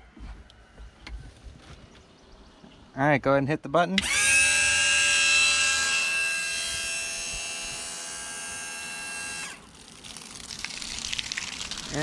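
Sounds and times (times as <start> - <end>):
bilge pump motor whine: 4.0 - 9.6.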